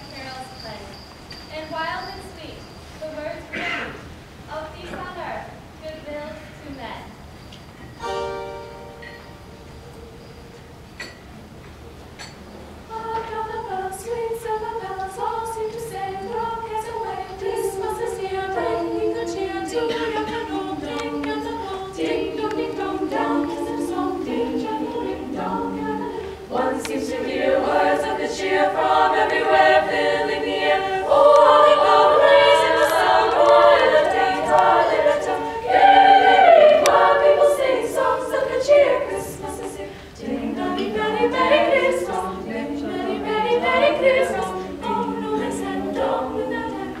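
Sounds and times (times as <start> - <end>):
women's choir singing a cappella: 12.9 - 47.0.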